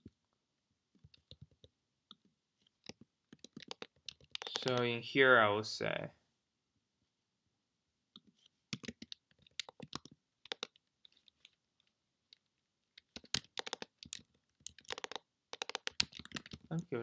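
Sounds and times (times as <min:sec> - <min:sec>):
typing on computer keyboard: 0:02.8 - 0:04.9, 0:08.7 - 0:11.2, 0:13.0 - 0:16.8.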